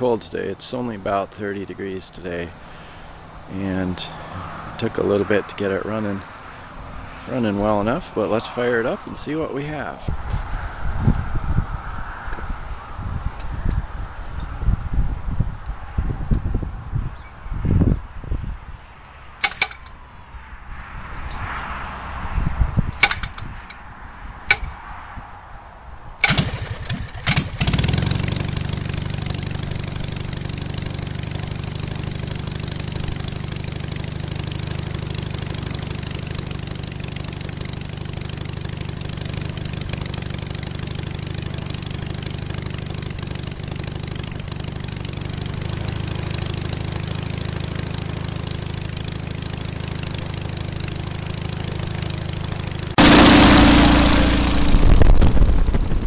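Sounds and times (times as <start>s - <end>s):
propeller engine starting and running: 19.4s - 20.0s, 22.9s - 24.8s, 26.2s - 56.0s
sharp clicks: 19.4s - 20.0s, 23.0s - 23.8s, 24.5s - 24.8s.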